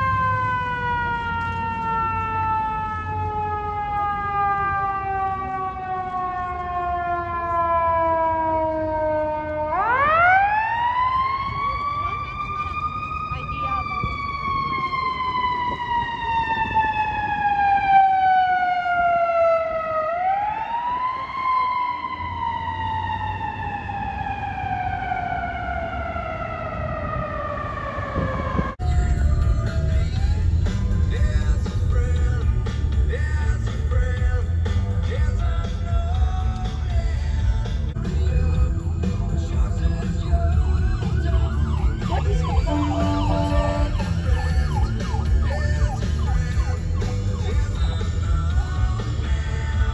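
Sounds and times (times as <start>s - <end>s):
emergency vehicle siren wailing: 0.0s - 49.9s
low traffic rumble: 0.0s - 49.9s
steady vehicle horn: 42.5s - 44.2s.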